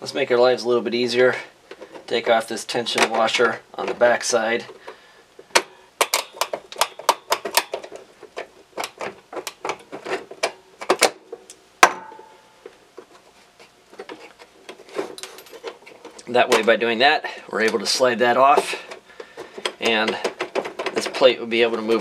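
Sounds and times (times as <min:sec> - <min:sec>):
pliers clicking on metal parts: 0:05.5 - 0:11.6.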